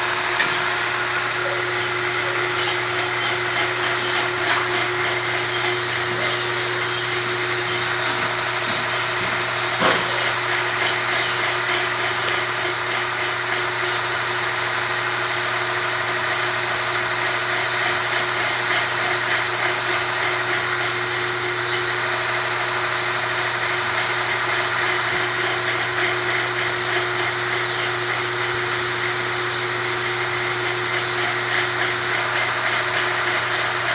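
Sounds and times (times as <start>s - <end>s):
small motor humming: 0.0s - 33.9s.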